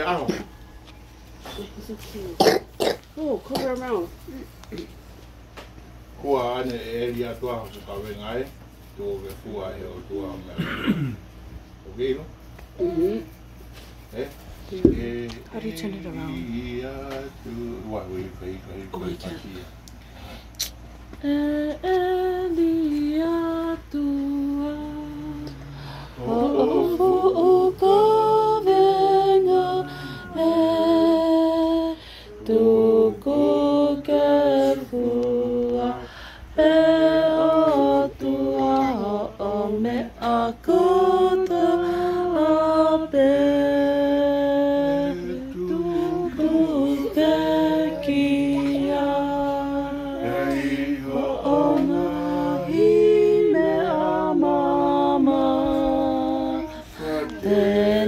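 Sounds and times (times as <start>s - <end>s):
group singing unaccompanied: 21.2s - 58.0s.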